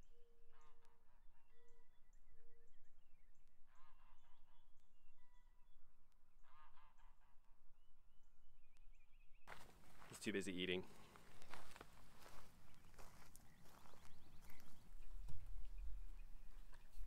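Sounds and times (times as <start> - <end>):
geese honking: 6.4 - 7.6.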